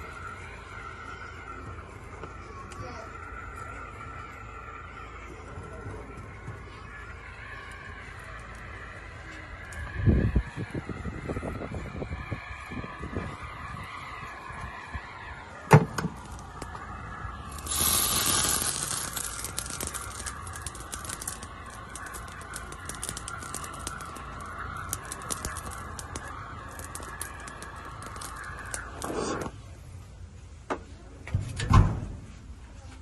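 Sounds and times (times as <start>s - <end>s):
gas torch flame hissing: 17.4s - 29.7s.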